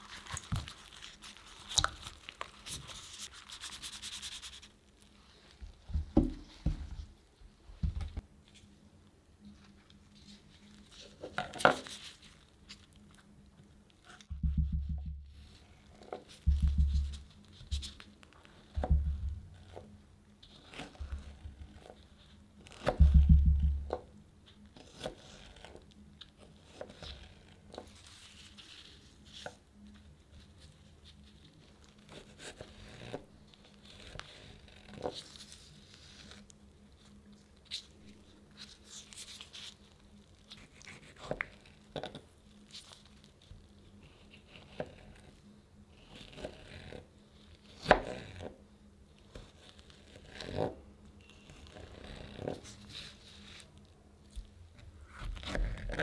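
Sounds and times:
loud low thump: 18.9 - 19.5.

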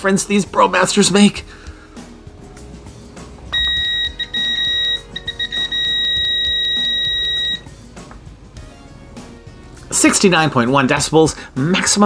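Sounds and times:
multimeter beeper tone: 3.5 - 7.7.

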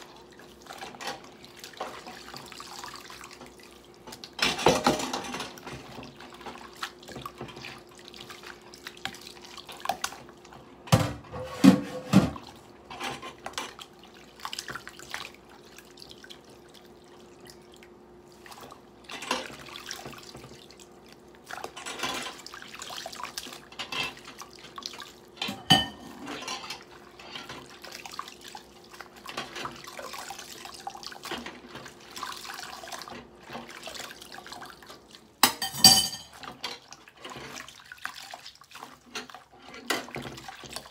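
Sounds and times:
water splashing and dripping: 13.4 - 25.4, 27.5 - 35.4, 36.4 - 39.5, 40.1 - 40.9.

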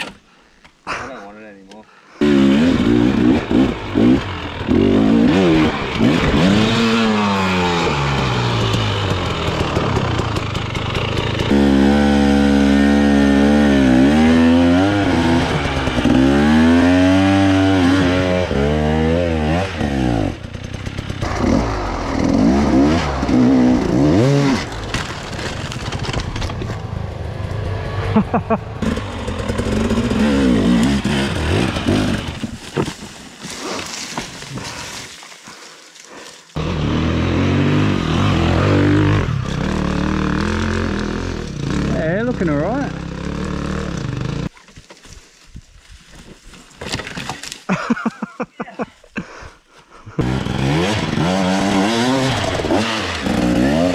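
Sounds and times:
dirt bike engines revving: 2.2 - 24.9, 26.7 - 44.5, 49.9 - 53.9.

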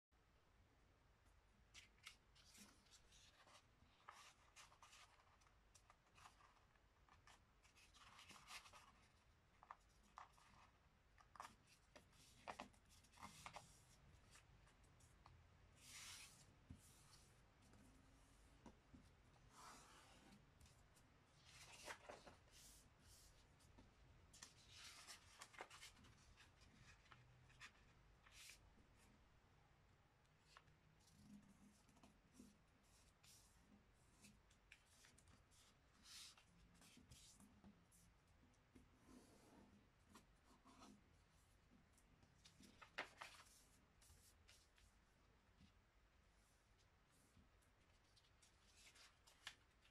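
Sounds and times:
paper rustling and crinkling: 21.4 - 23.4, 24.3 - 28.6, 42.4 - 44.9, 47.9 - 49.9.

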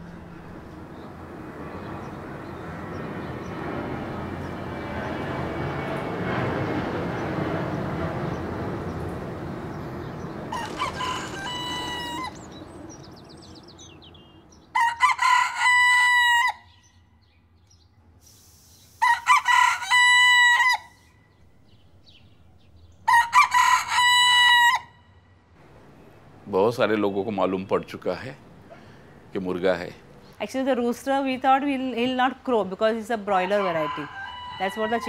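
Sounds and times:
jet airliner rumble: 0.0 - 14.1
rooster crowing: 10.5 - 12.6, 14.7 - 16.8, 19.0 - 21.1, 23.1 - 25.0, 33.4 - 35.0.

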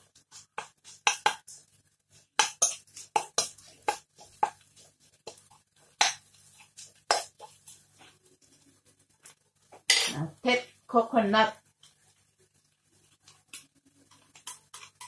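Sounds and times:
metal spoon scraping a wok: 9.8 - 10.3.

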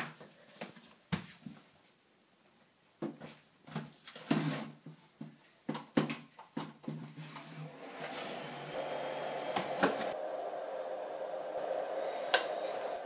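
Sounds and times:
handheld vacuum rubbing on floor: 7.3 - 10.2, 11.6 - 13.0.

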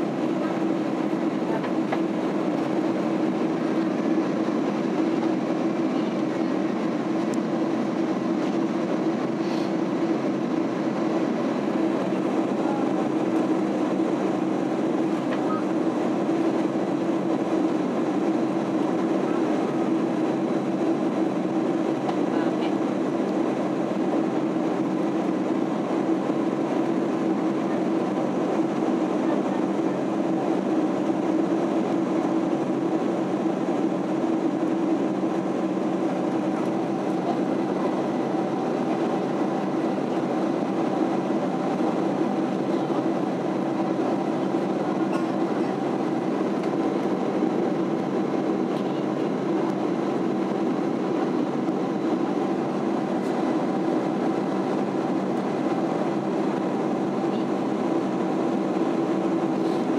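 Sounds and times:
airliner cabin engine drone: 0.0 - 59.9.

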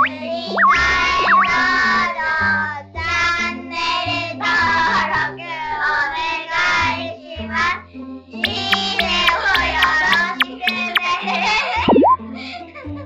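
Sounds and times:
upbeat music with high vocals: 0.0 - 1.8, 8.4 - 11.2.

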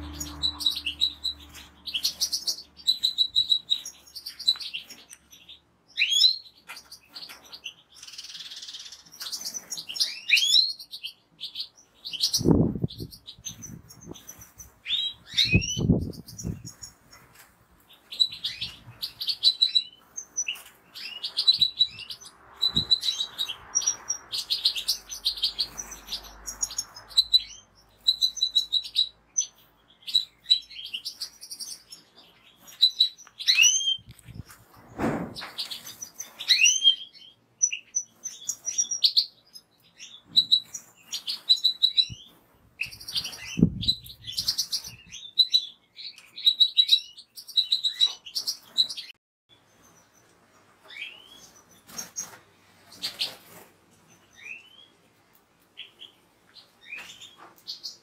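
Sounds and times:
goldfinch twittering song: 0.0 - 17.0
short thuds: 34.3 - 35.6.

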